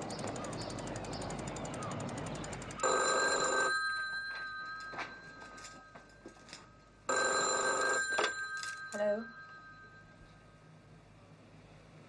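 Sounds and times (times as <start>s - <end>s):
landline telephone ringing: 2.8s - 6.4s, 7.1s - 10.5s.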